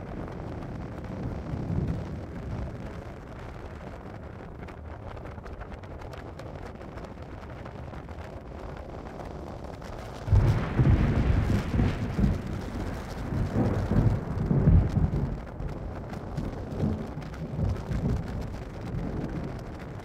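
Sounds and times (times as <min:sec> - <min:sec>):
low steady rush of noise: 0:00.0 - 0:20.0
thunder clap and rumble: 0:00.0 - 0:20.0.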